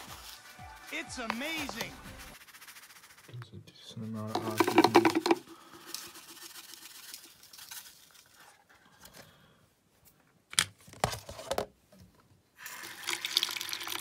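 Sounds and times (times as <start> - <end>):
rustling handling noises: 0.0 - 12.2
powder poured into plastic cup: 4.3 - 8.5, 12.6 - 14.0.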